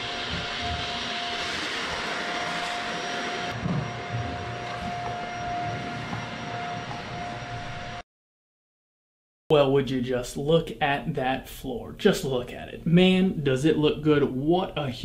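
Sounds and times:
machine drone with hum and hiss: 0.0 - 8.0.

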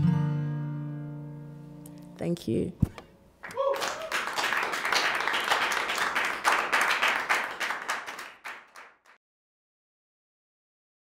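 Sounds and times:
group applauding: 3.4 - 9.2.

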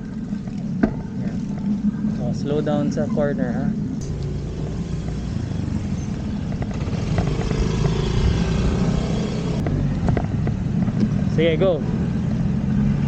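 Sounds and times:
wind rumbling on microphone: 0.0 - 13.0
bicycle rattles and clicks: 4.1 - 8.8
tyre noise on asphalt: 4.1 - 12.9.

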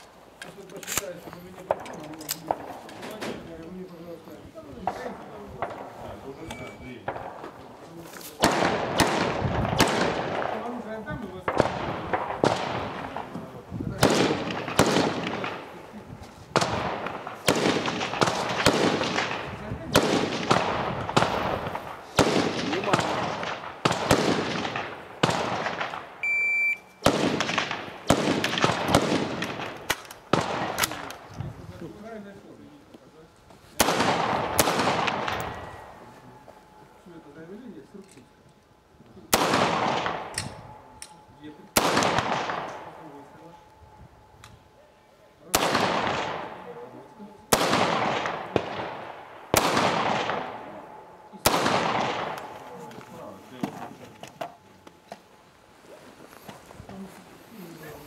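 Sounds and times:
rifle shots echoing: 4.8 - 7.6, 8.3 - 31.3, 33.8 - 37.0, 39.2 - 43.9, 45.4 - 53.4
shot timer beep: 26.2 - 27.0.

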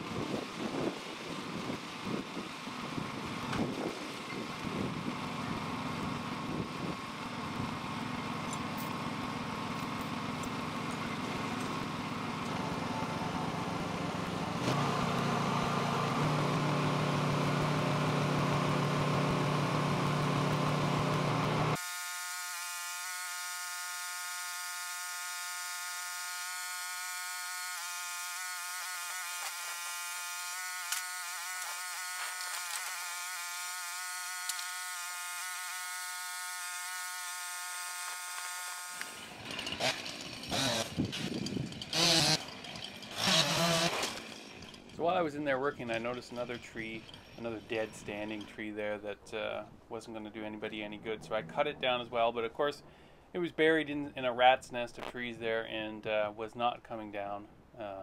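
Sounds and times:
engine running: 0.0 - 54.2
thin steady buzz: 21.7 - 39.3.

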